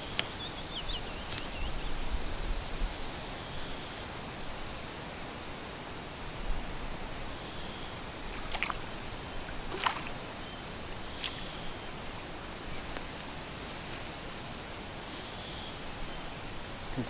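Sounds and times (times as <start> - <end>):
steady background hiss: 0.0 - 17.0
fish splashing at surface: 8.3 - 8.8, 9.7 - 10.2.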